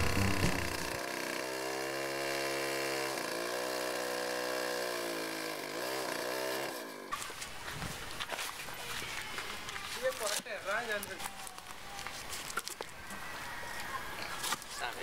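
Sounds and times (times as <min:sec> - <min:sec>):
music: 0:00.0 - 0:01.0
chainsaw cutting a log: 0:00.0 - 0:07.2.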